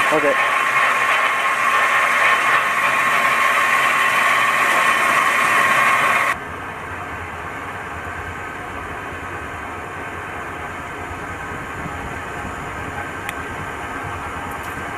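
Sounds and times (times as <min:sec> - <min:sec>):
air injector hissing in water: 0:00.0 - 0:06.4.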